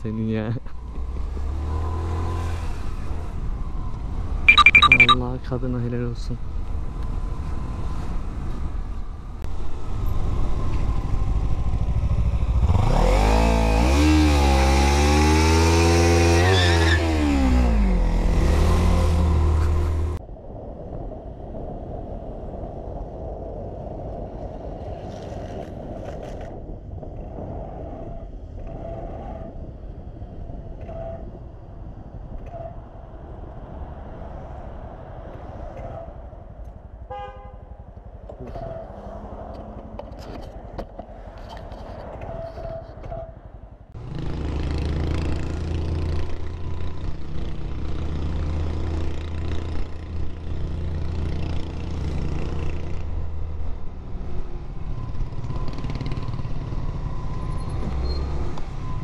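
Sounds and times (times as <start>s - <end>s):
road noise: 0.0s - 59.0s
wind rush: 20.1s - 37.1s.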